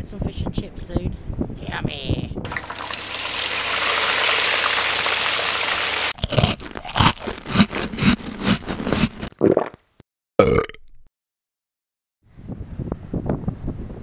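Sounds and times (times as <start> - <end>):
person chewing crunchy food: 6.1 - 9.8.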